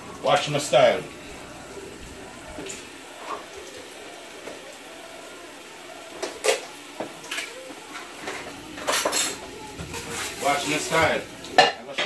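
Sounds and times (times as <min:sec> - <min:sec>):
pots and utensils clinking: 0:02.5 - 0:04.7, 0:06.0 - 0:12.0.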